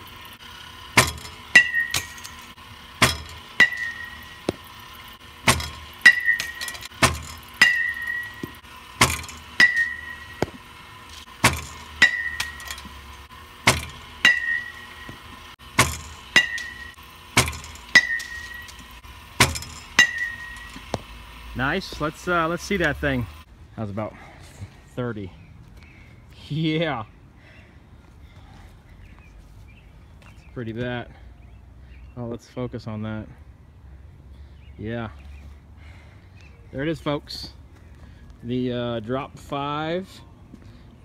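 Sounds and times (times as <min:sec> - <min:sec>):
faint steady hum: 0:00.0 - 0:41.0
bat hitting baseball ping: 0:00.8 - 0:21.3.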